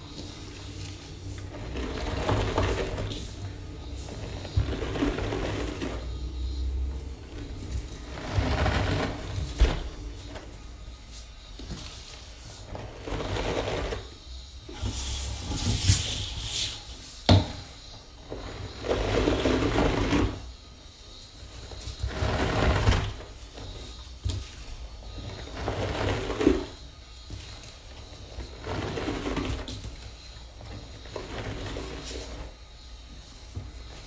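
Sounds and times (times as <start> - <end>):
sponge rubbing in cleanser powder: 0.0 - 6.4, 7.0 - 17.2, 30.7 - 34.0.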